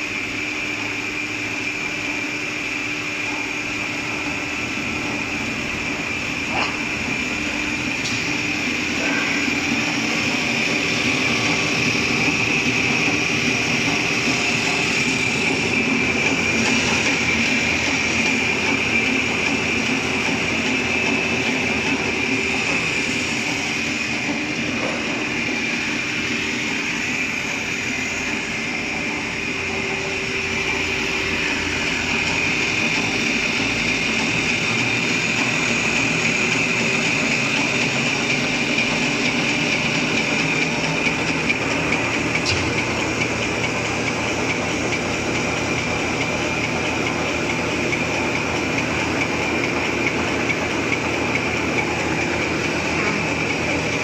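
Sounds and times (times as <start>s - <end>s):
machine high whine: 0.0s - 54.0s
machine rollers clattering: 4.0s - 54.0s.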